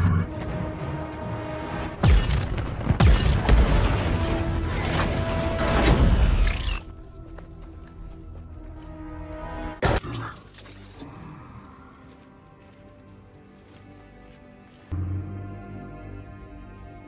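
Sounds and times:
film music score: 0:00.0 - 0:17.0
explosion and flying debris: 0:02.0 - 0:06.8.

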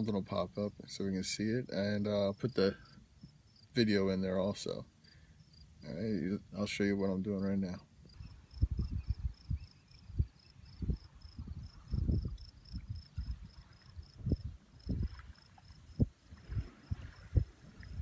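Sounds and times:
high pulsed insect trill: 0:02.3 - 0:03.8, 0:05.0 - 0:06.1, 0:08.0 - 0:18.0
wind buffeting microphone: 0:08.1 - 0:18.0.

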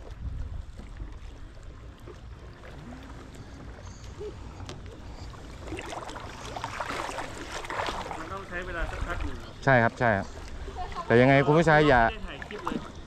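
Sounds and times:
wind rumble on microphone: 0:00.0 - 0:01.9
water lapping and splashing: 0:00.0 - 0:13.0.

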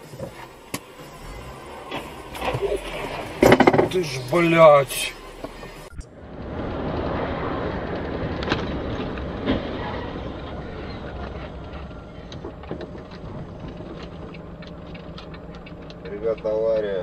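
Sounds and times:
road and spray noise: 0:00.0 - 0:17.0
sharp knocks: 0:03.4 - 0:04.0
small debris clicks: 0:06.8 - 0:17.0.

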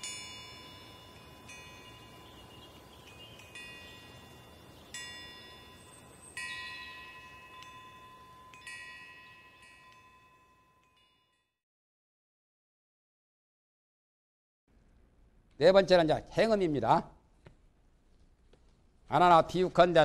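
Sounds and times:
faint steady high tone: 0:00.0 - 0:11.6
metal chimes ringing: 0:00.0 - 0:11.6.

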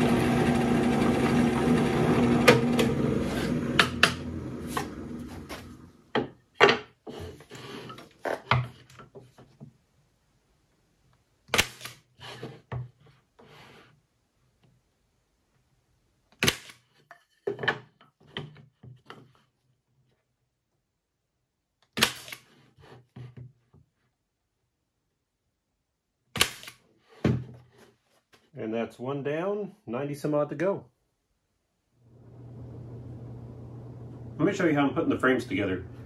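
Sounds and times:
staple gun snapping: 0:26.4 - 0:26.8.

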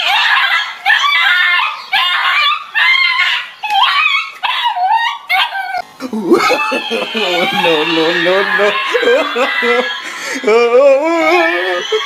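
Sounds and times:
small dog yelping: 0:00.0 - 0:05.8.

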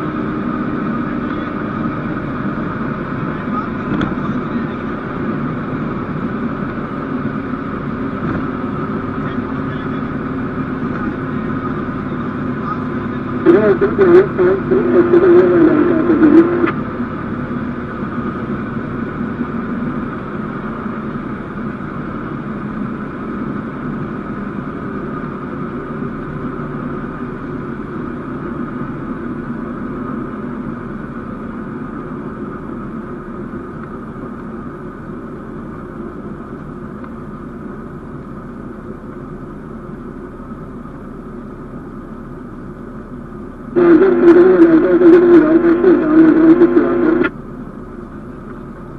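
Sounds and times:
aircraft engine and propeller drone: 0:00.0 - 0:48.9.

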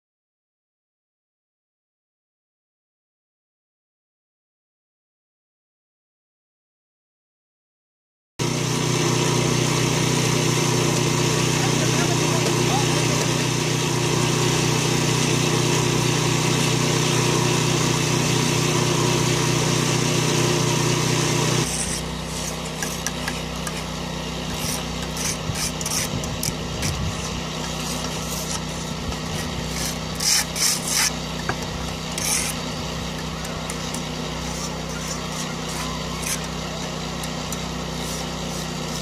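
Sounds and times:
small engine humming: 0:08.4 - 0:39.0
trowel scraping mortar: 0:09.2 - 0:39.0.

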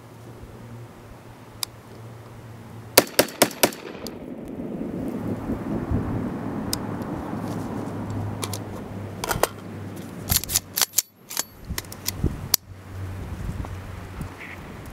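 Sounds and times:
pistol action clicking: 0:03.0 - 0:04.2, 0:10.3 - 0:12.2
wind rumble on microphone: 0:03.8 - 0:10.6, 0:11.5 - 0:14.9.

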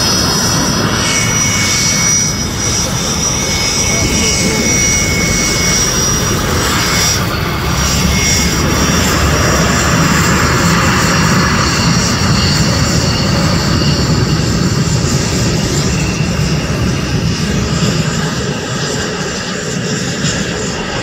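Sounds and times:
jet engine noise with whine: 0:00.0 - 0:21.0.

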